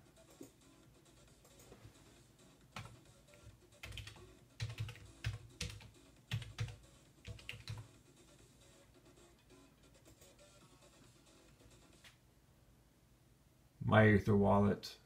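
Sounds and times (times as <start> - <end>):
keyboard typing: 2.7 - 7.9.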